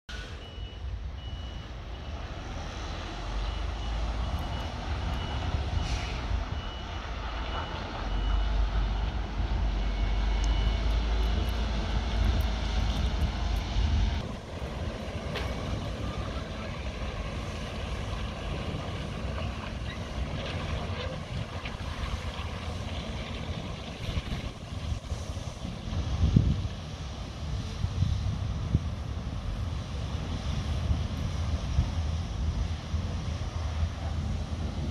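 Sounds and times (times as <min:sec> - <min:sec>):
high warning beeps: 0:00.2 - 0:02.3, 0:03.4 - 0:12.2
diesel truck engine running: 0:00.3 - 0:34.9.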